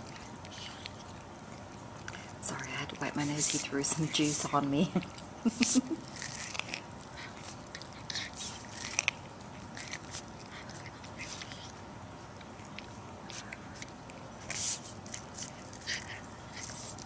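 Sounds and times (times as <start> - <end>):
cat crunching corn kernels: 0.0 - 17.0.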